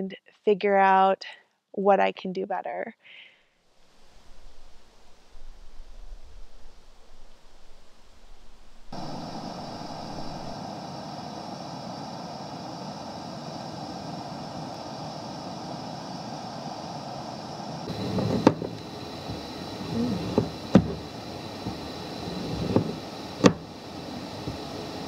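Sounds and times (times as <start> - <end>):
car road and engine noise: 8.8 - 11.6, 16.8 - 25.0
sharp knocks and low bumps: 17.9 - 23.7.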